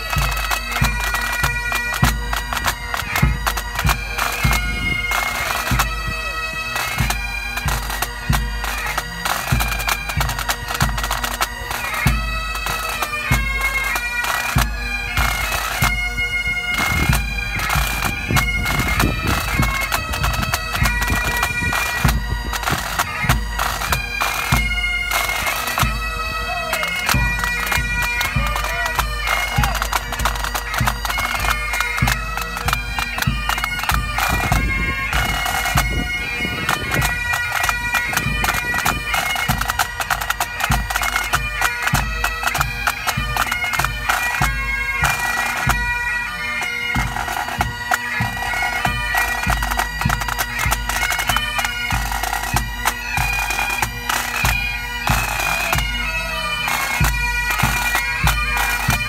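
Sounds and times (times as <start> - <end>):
bagpipes playing a tune: 0.0 - 59.0.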